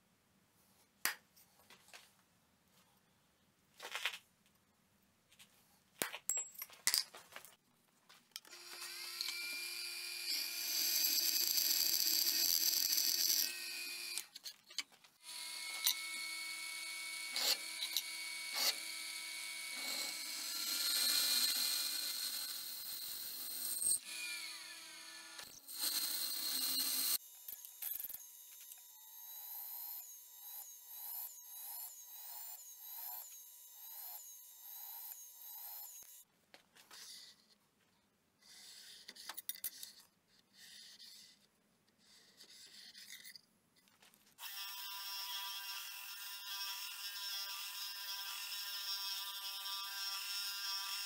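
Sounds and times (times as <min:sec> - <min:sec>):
drill bit clicks and squeals: 0:08.4 - 0:09.4.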